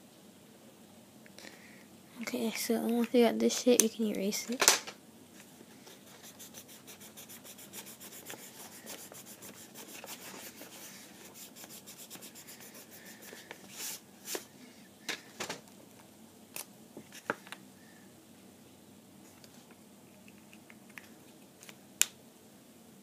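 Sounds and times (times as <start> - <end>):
eraser rubbing on paper: 5.9 - 14.4.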